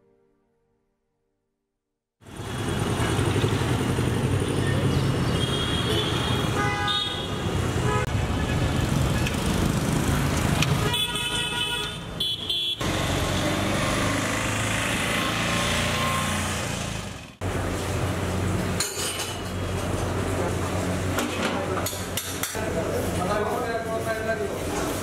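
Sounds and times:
street traffic: 2.2 - 25.0
car horns tooting: 5.3 - 8.2, 10.8 - 12.8
multi-tone horn blast: 5.4 - 8.2, 10.8 - 12.8.

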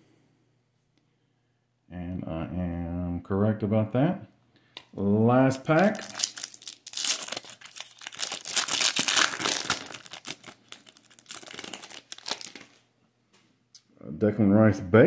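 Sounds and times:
wrapper tearing and crinkling: 5.6 - 12.9.

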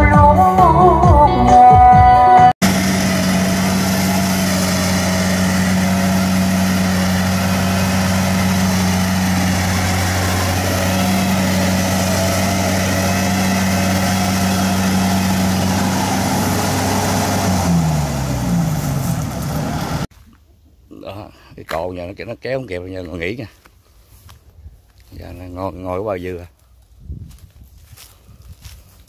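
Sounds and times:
combine harvester diesel engine: 2.6 - 20.1.

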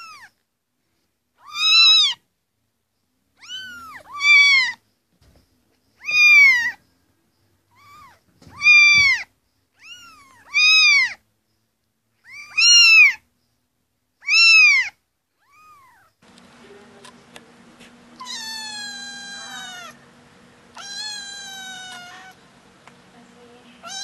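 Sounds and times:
kittens meowing: 0.0 - 0.4, 1.4 - 2.2, 3.4 - 4.8, 6.0 - 6.8, 7.7 - 11.2, 12.2 - 13.3, 14.2 - 16.2, 18.1 - 20.1, 20.7 - 22.4, 23.8 - 24.0.

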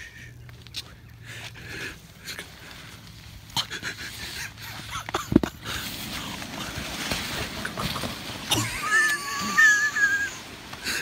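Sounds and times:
tent fabric rustling and scraping: 2.4 - 11.0.

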